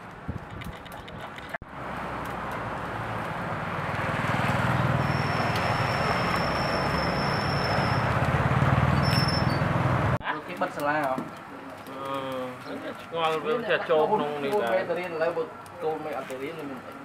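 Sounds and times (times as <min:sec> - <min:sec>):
street traffic passing: 0:00.0 - 0:17.0
motorbike engines: 0:00.9 - 0:10.2.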